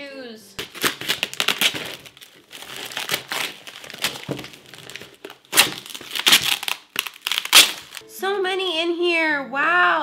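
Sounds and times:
tissue paper and cardboard rustling: 0:00.6 - 0:08.0.

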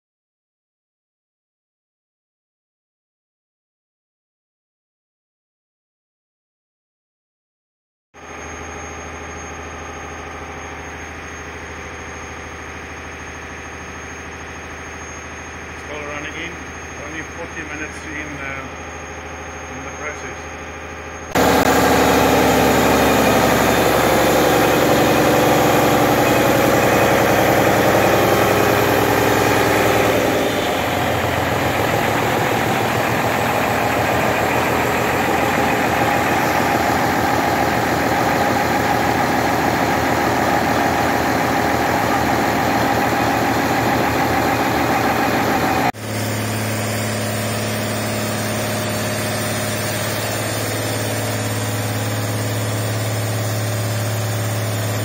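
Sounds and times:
diesel engine running steadily: 0:08.2 - 0:55.0
lower smoother hum: 0:20.6 - 0:55.0.

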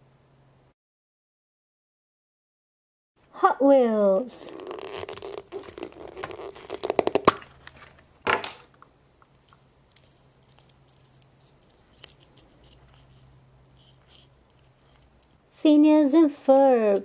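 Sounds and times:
plastic wrapper crinkling: 0:04.4 - 0:08.1.

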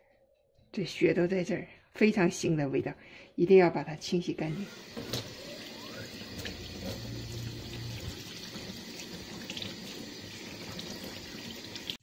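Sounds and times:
tap running into a steel sink: 0:04.9 - 0:05.5, 0:06.2 - 0:10.0.

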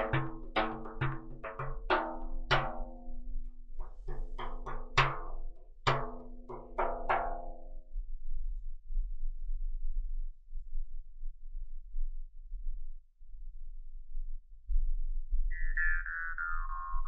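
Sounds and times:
frame drum tapped with fingers: 0:00.0 - 0:07.8.

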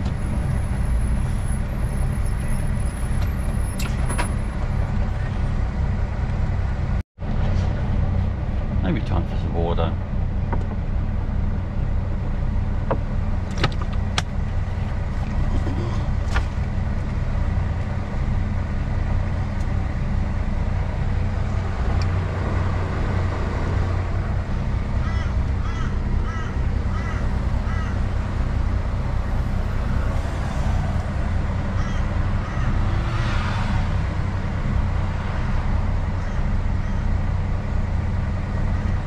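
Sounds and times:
diesel engine idling: 0:00.0 - 0:39.0
bird calling: 0:25.0 - 0:28.1, 0:31.6 - 0:32.8, 0:36.2 - 0:37.2.

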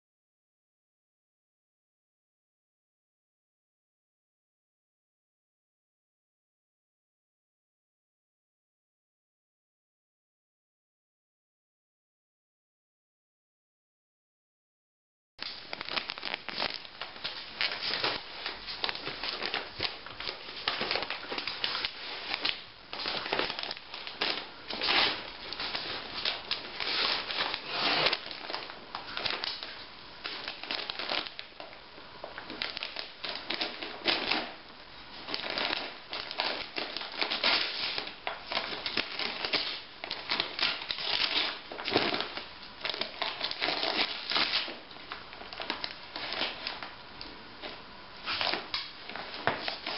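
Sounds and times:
wrapping paper crinkling and tearing: 0:15.4 - 0:47.0, 0:47.6 - 0:49.9.

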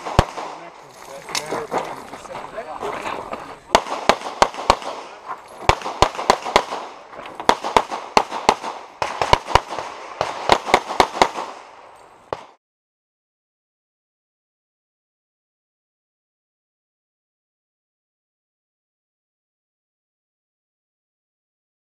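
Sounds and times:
pistol shots with echo: 0:00.0 - 0:01.8, 0:03.0 - 0:12.6.

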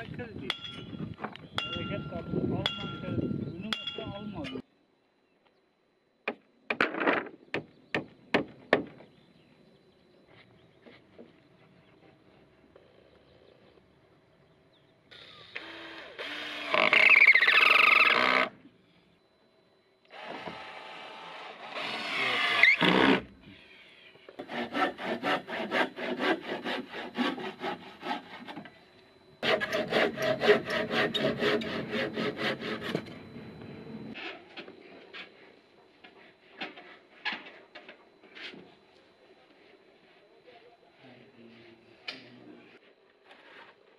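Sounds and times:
hand saw cutting wood: 0:20.2 - 0:23.2, 0:24.4 - 0:28.7, 0:29.4 - 0:33.2.

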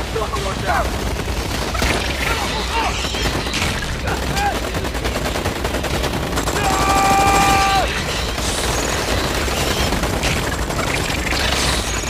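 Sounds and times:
automatic gunfire: 0:00.0 - 0:12.0
person yelling: 0:06.6 - 0:07.9.

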